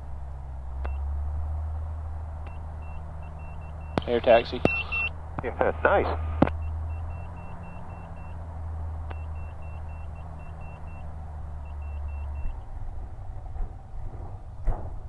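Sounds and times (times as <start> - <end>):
aircraft engine drone over intercom: 2.1 - 8.4
short high beeps: 2.5 - 5.1, 6.5 - 8.4, 9.1 - 11.0.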